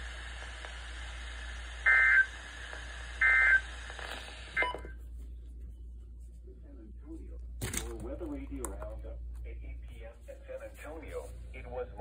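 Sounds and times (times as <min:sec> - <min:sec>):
radio hissing: 0:00.0 - 0:04.8.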